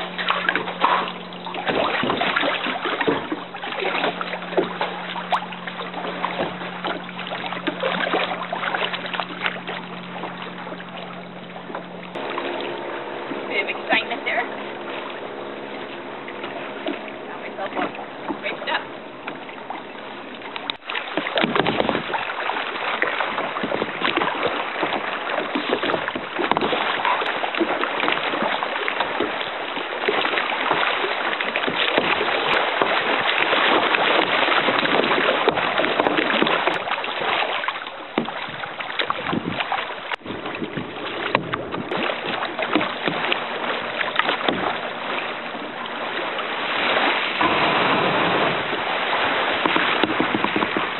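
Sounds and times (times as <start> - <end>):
water slapping against a kayak hull: 0.0 - 50.9
wind buffeting microphone: 21.3 - 22.3, 38.2 - 43.4.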